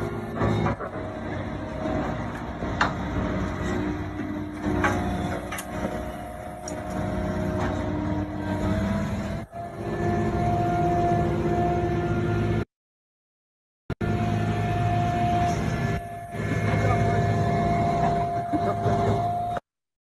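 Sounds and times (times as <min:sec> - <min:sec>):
heavy machine engine running: 0:00.0 - 0:12.7, 0:14.0 - 0:19.6
metal clanks and knocks: 0:00.2 - 0:06.1.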